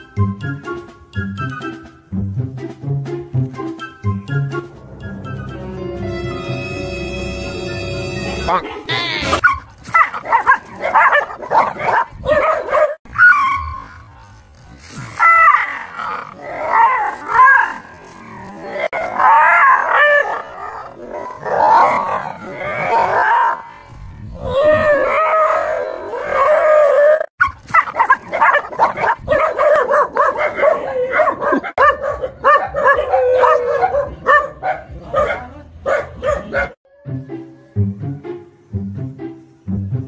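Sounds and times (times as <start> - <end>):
dogs yelping and barking: 8.2 - 14.0, 15.1 - 37.8.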